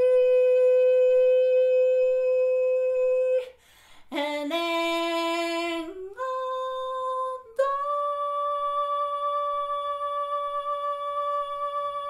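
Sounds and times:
short breath: 3.5s - 4.1s.

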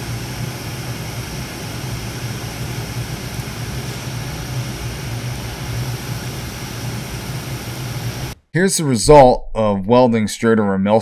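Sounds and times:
welding arc crackling hiss: 0.0s - 8.4s.

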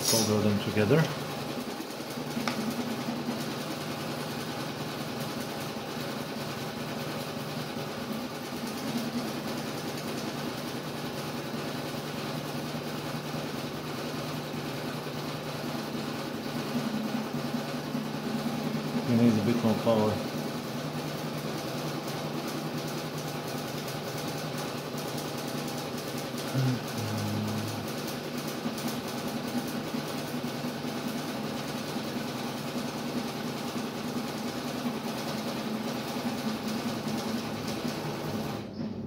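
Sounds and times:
low mechanical hum: 26.3s - 28.6s, 37.1s - 39.0s.

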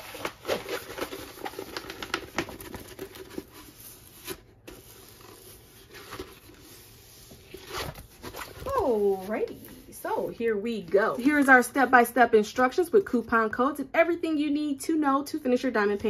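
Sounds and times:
plastic film crinkling: 0.0s - 9.5s.

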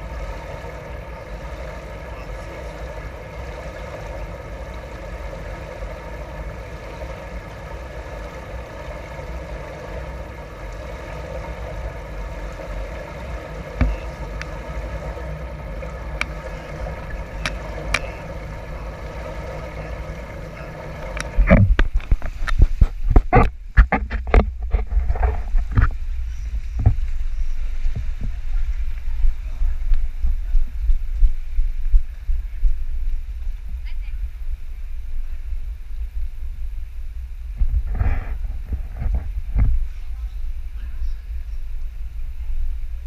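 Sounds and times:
pool hall hum: 0.0s - 43.0s
camera knocks and thuds: 21.2s - 26.0s.

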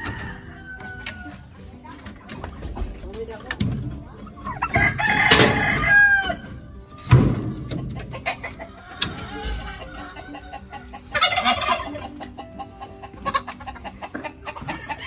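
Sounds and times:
rooster crowing: 0.0s - 1.4s, 4.7s - 6.5s.

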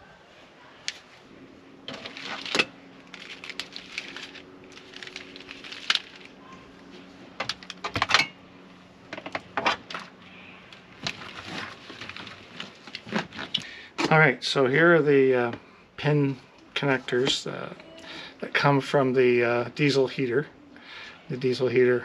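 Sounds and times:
faint steady hum: 0.0s - 22.0s
small parts clicking and rustling: 1.9s - 6.4s.

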